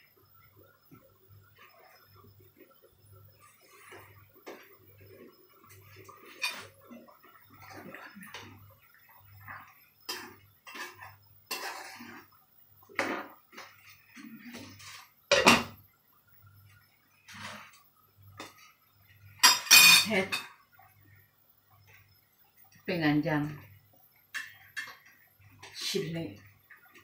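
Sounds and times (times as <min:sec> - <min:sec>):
metal ladle scraping a pan: 0:06.1 - 0:06.8, 0:09.5 - 0:12.4, 0:17.3 - 0:17.8.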